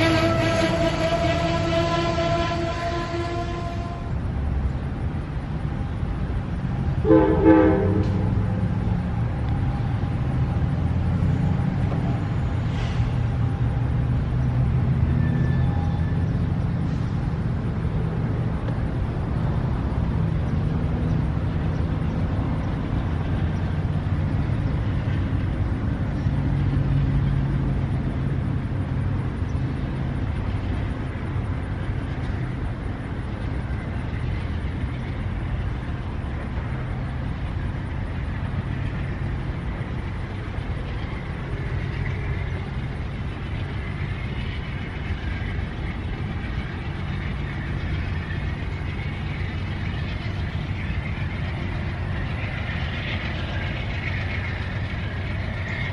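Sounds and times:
short train horn toot: 0.0 - 4.2, 7.0 - 8.5
train cars rumbling on rails: 0.0 - 55.9.

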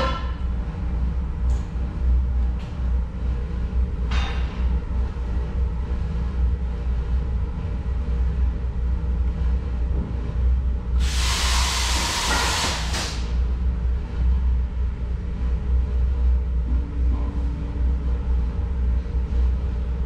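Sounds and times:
furnace humming: 0.0 - 20.0
loud hiss: 11.0 - 13.3.

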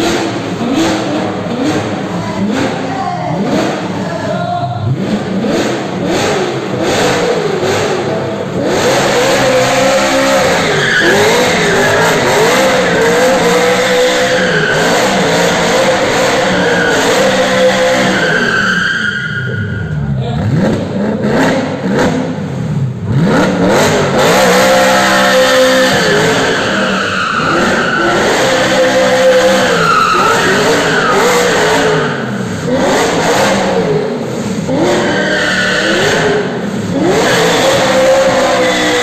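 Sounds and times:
car engine revving: 0.0 - 39.0
tyres squealing: 9.4 - 20.0.

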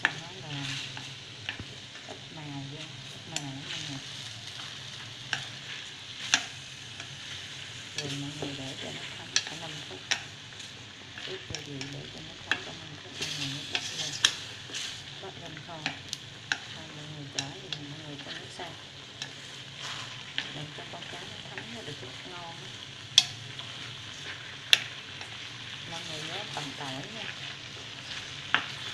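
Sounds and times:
fish sizzling in a pot: 0.0 - 28.9
chopsticks clicking against metal pot: 0.9 - 3.9, 5.3 - 5.6, 6.2 - 7.2, 8.0 - 10.3, 11.2 - 19.5, 23.1 - 25.4.

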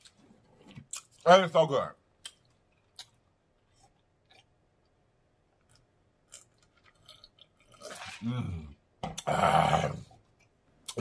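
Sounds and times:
mouth sounds of eating: 5.7 - 11.0.

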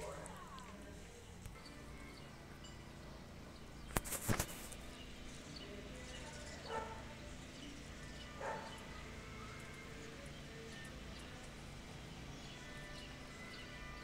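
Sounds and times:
distant dog barking: 6.6 - 7.2, 8.2 - 9.0.

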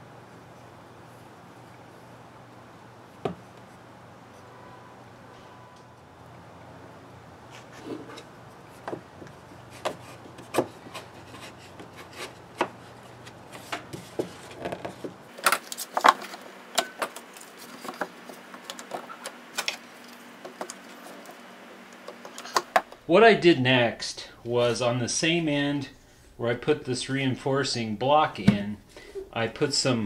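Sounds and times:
wooden knocks and rubbing: 7.6 - 15.2.

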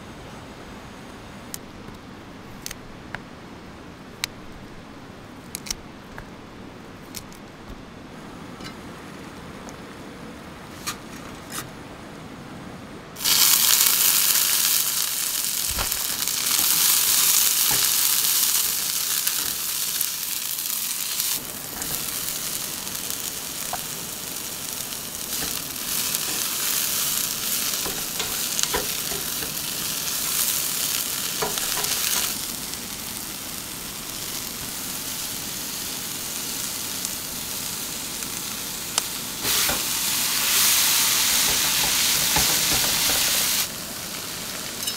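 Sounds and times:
food sizzling in a frying pan: 13.2 - 44.9.

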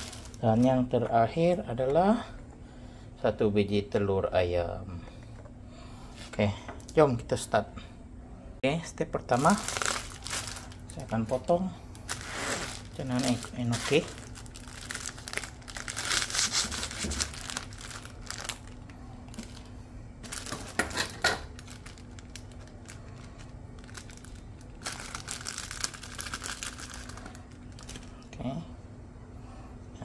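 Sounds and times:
plastic packaging crinkling and tearing: 0.0 - 1.0, 9.2 - 28.2
plastic rustling: 0.0 - 1.9, 9.3 - 28.3.

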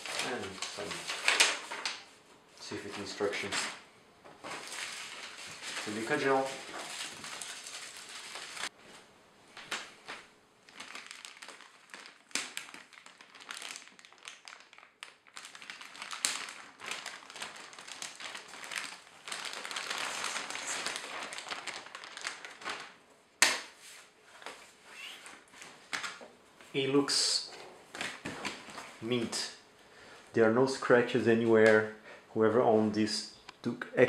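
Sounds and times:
plastic wrapping crinkling: 0.0 - 2.2, 4.4 - 8.8, 9.6 - 26.2.

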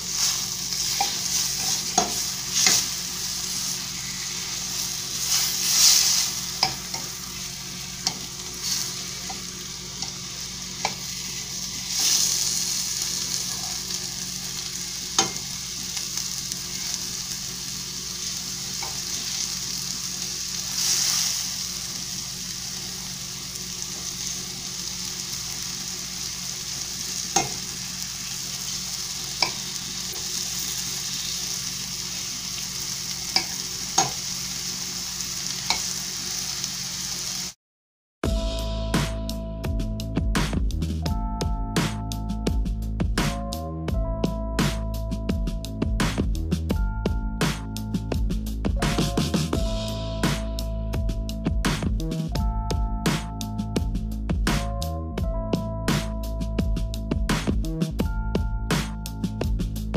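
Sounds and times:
meat sizzling in a pan: 0.0 - 37.6
metal fork clinking on pan: 35.7 - 35.9.

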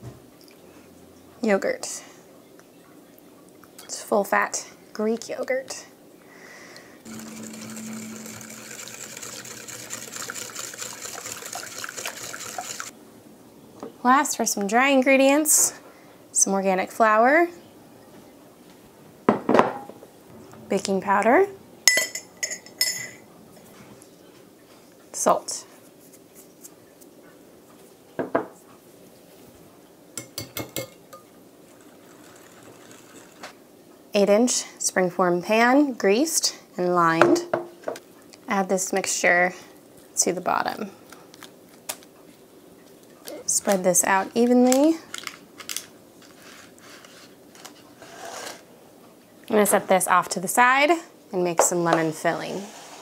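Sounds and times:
whisk clattering against glass bowl: 7.1 - 12.9
utensils clinking on glass bowl: 21.9 - 23.2, 30.2 - 33.4.

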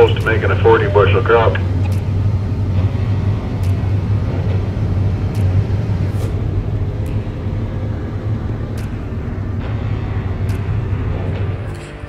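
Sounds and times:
combine harvester drone: 0.0 - 12.0
faint ticks: 3.6 - 3.9, 4.5 - 5.8, 8.7 - 9.6, 10.4 - 12.0.

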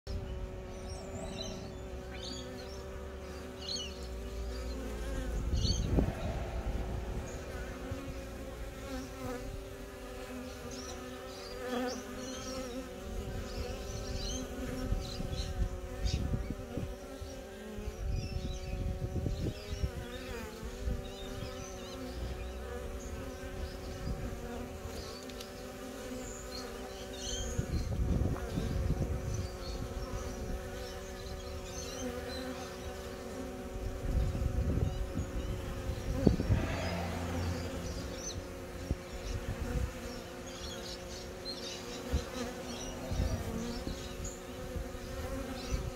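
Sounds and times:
bees buzzing: 0.1 - 45.9
low rumble bursts: 5.4 - 8.9, 36.3 - 38.5.

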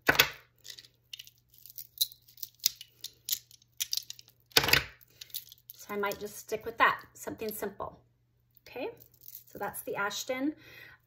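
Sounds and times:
beaded bracelets clicking and rattling: 0.6 - 6.3, 9.0 - 9.6.

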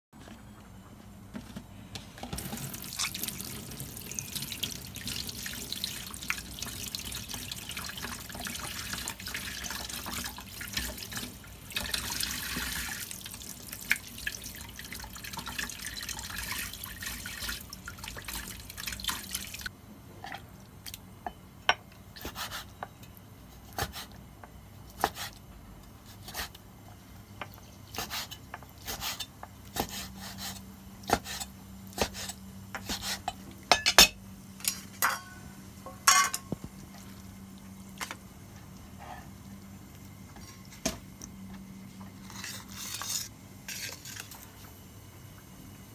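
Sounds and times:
tap water running into sink: 2.3 - 19.7.

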